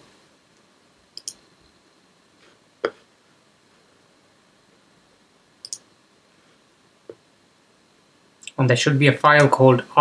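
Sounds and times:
computer mouse click: 1.2 - 1.4, 5.6 - 5.9.

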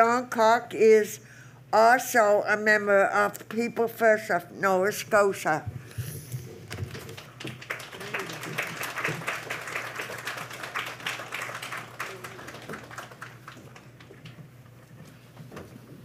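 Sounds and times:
audience applauding: 6.7 - 14.4.

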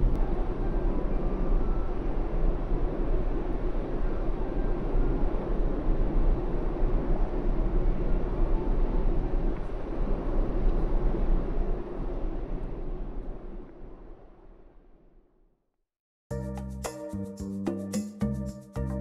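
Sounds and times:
ferry engine rumble and rush: 0.0 - 14.4.

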